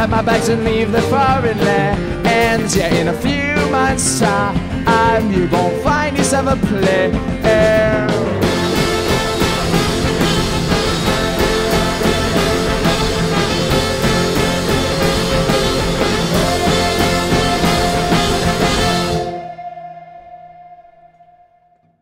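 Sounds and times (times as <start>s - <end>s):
live rock band instrumental: 0.0s - 19.5s
held high note: 8.4s - 21.5s.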